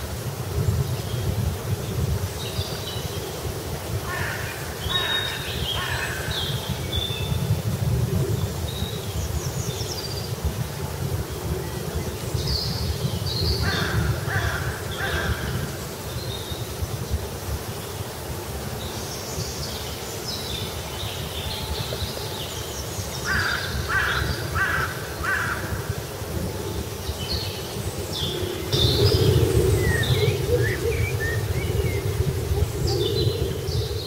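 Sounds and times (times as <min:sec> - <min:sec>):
crows cawing: 0:04.1 - 0:06.3, 0:13.6 - 0:15.7, 0:23.3 - 0:25.8
steady low rumble: 0:27.7 - 0:34.0.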